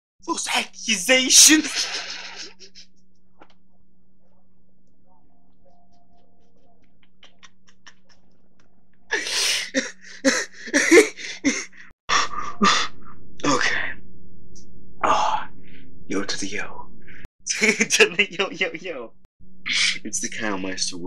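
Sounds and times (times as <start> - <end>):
man wheezing laughter: 1.6 - 2.8, 9.1 - 11.8.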